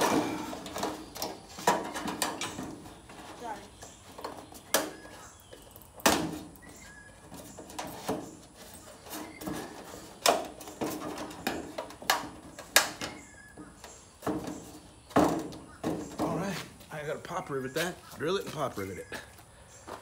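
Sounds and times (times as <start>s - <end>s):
metal gutter knocking and clanking: 0.0s - 3.5s.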